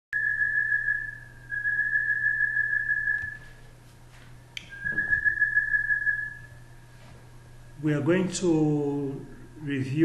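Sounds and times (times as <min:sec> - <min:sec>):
high-pitched whistle-like tone: 0:00.1 - 0:03.5, 0:04.6 - 0:06.6
faint low hum: 0:00.2 - 0:10.0.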